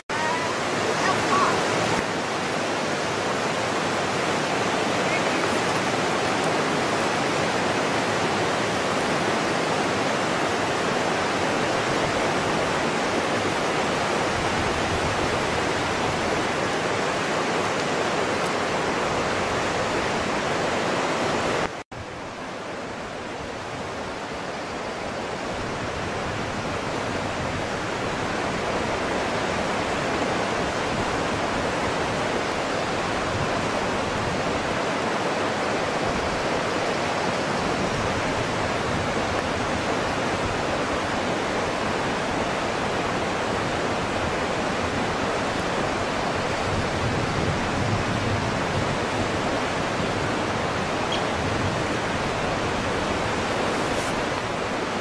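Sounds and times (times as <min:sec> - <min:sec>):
steady rushing hiss: 0:50.4 - 0:55.0.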